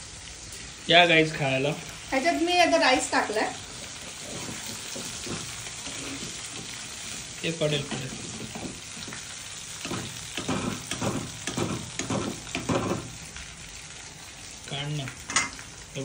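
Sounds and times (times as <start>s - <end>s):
food sizzling in hot oil: 0.0s - 16.0s
metal spoon scraping pan: 4.2s - 6.8s.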